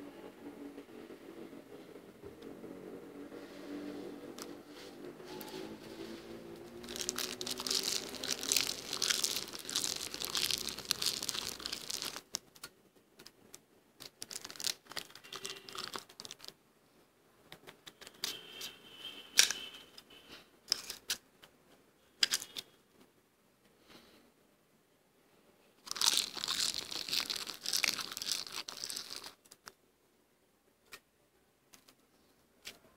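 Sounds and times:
freezer frost crunching: 6.7s - 12.4s, 14.0s - 16.5s, 25.9s - 29.7s.

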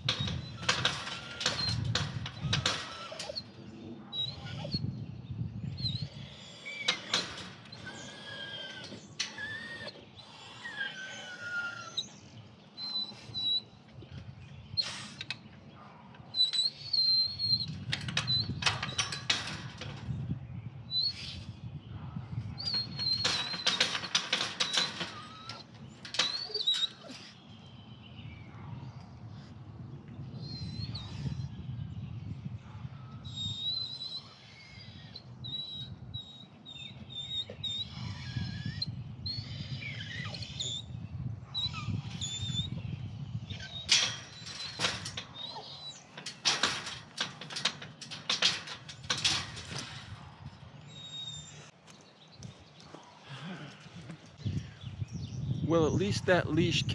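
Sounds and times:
metal wire gate rattling: 0.0s - 3.6s, 6.4s - 11.6s, 16.2s - 20.4s, 22.6s - 27.5s, 41.8s - 51.7s.

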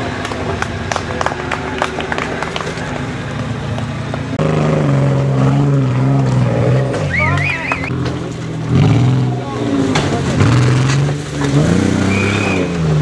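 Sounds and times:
suv engine working hard: 0.0s - 13.0s
trilling whistle: 7.1s - 7.9s, 12.0s - 12.7s.

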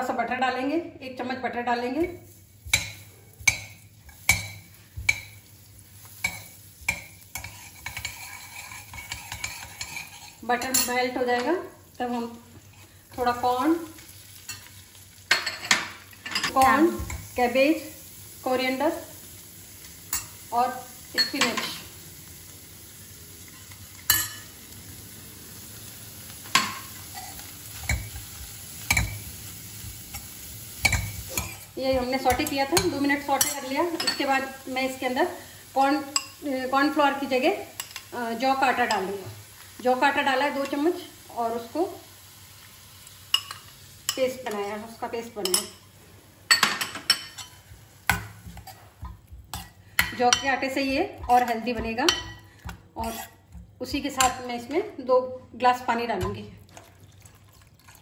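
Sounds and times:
faint sizzle: 0.0s - 58.0s
spoon clinking against a pan: 6.2s - 11.0s, 23.6s - 24.5s, 32.3s - 34.3s, 36.1s - 36.4s, 43.3s - 44.3s, 45.4s - 45.8s, 46.5s - 48.8s, 51.2s - 53.3s.

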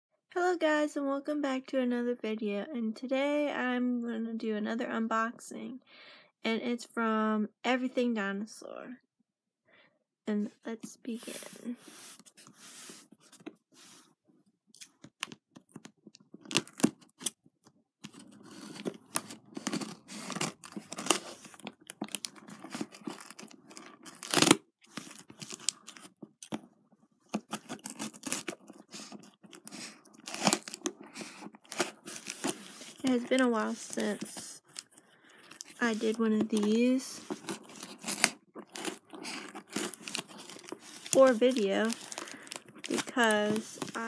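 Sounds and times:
tape tearing and crinkling: 14.8s - 17.4s, 18.0s - 26.6s, 27.3s - 44.0s
scissors cutting packing tape: 18.1s - 26.6s, 27.3s - 34.9s, 35.6s - 44.0s.

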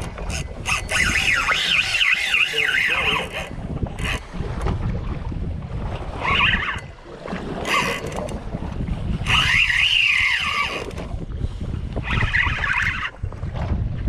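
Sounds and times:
fishing reel whirring: 0.0s - 4.3s, 6.1s - 7.0s, 7.6s - 8.4s, 9.2s - 11.0s, 12.0s - 13.1s
wind and boat rumble: 0.0s - 14.0s.

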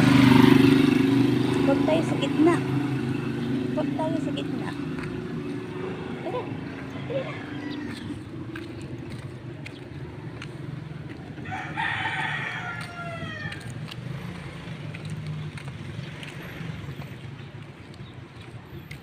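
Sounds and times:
rooster crowing: 6.9s - 8.3s, 11.4s - 13.8s.

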